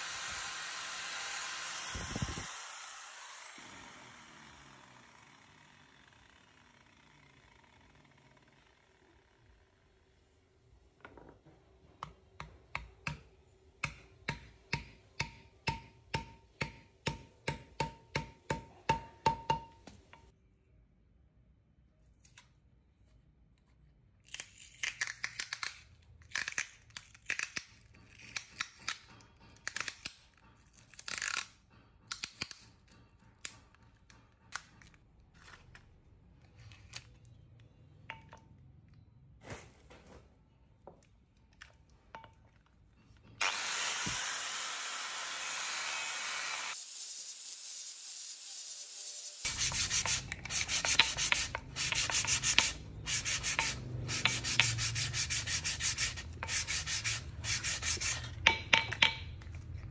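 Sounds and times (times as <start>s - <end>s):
hammer striking metal: 13.8s - 19.8s, 58.3s - 59.4s
scraping strokes: 49.4s - 58.5s.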